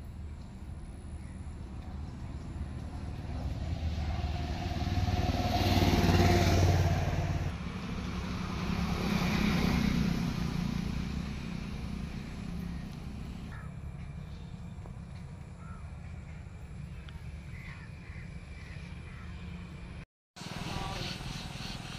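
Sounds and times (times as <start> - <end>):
vehicle engine passing by: 1.6 - 15.8.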